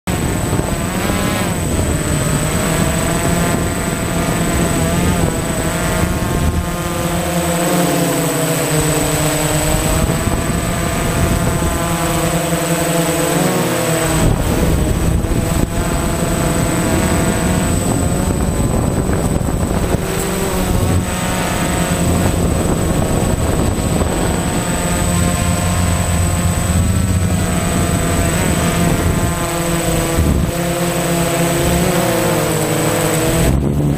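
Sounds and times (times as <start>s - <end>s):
drone propellers buzzing: 0.1s - 33.9s
high-pitched whine: 0.1s - 33.9s.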